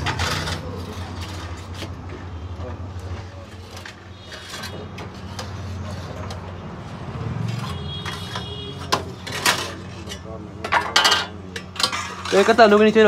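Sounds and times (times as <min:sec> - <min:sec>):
metal trays clicking and knocking: 0:00.0 - 0:02.1, 0:07.5 - 0:13.0.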